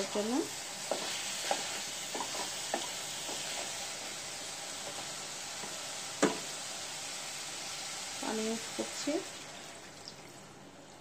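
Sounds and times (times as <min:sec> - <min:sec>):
meat sizzling in a pan: 0:00.0 - 0:09.9.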